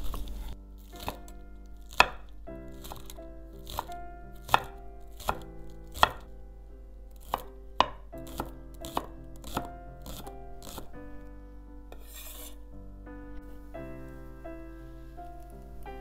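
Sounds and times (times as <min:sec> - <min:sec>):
knife chopping on wooden board: 0:01.0 - 0:01.2, 0:01.9 - 0:06.3, 0:07.2 - 0:10.9.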